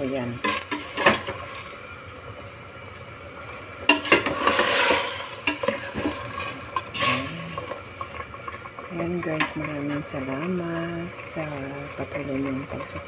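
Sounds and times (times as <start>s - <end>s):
sauce sizzling: 0.0s - 13.0s
metal ladle scraping a pot: 3.8s - 8.7s.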